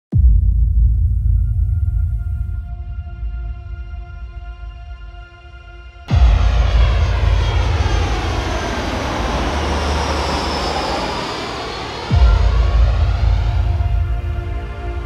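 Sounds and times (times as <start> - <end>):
deep bass hit: 0.1 - 4.6, 6.1 - 10.8, 12.0 - 15.0
background music: 0.6 - 8.5, 12.1 - 15.0
jet airliner roar overhead: 6.0 - 15.0.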